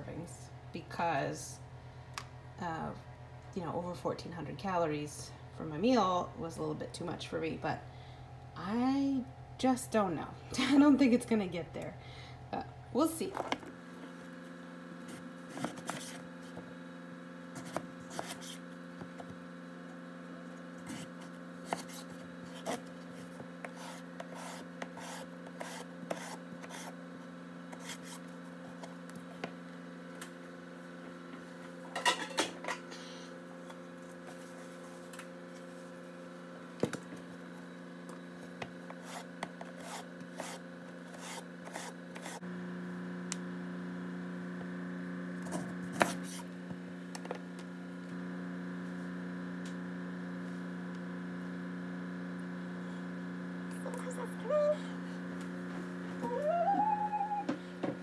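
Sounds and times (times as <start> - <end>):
peeler scraping potato: 17.6 - 18.6, 20.8 - 27.0, 27.7 - 28.3, 38.9 - 42.4, 46.0 - 46.5.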